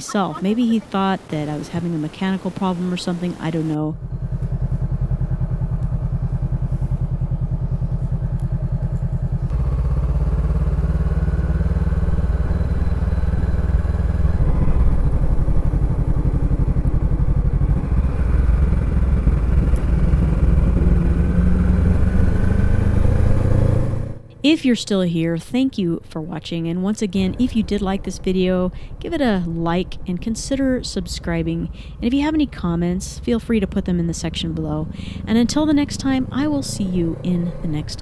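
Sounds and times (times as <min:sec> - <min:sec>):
motorcycle engine idling and running: 0:03.8 - 0:24.8, 0:31.5 - 0:38.0.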